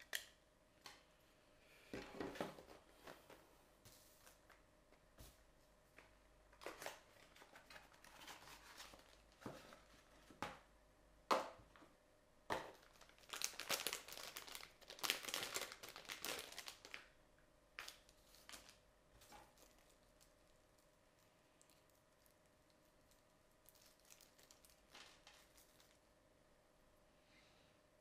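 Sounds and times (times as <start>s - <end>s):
packaging crinkling and rustling: 6.6s - 10.4s, 12.7s - 17.1s, 17.8s - 20.5s, 23.0s - 26.1s.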